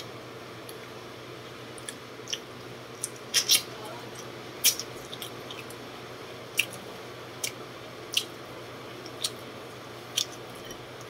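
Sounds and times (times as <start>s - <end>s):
steady low hum: 0.0s - 11.0s
person chewing and smacking lips: 1.7s - 5.8s, 6.5s - 6.8s, 7.4s - 11.0s.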